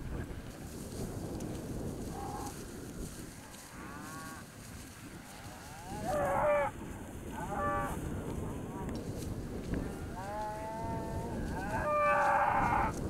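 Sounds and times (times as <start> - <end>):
wind rumbling on microphone: 0.0 - 13.0
cattle mooing: 5.3 - 6.8, 7.4 - 8.0, 9.8 - 12.9.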